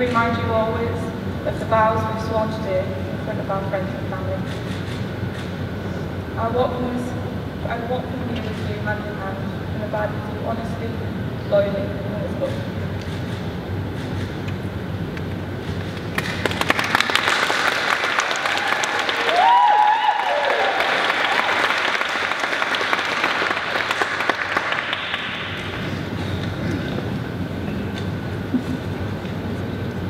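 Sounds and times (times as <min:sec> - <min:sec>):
people clapping: 0:15.8 - 0:26.6
person whooping: 0:18.4 - 0:21.6.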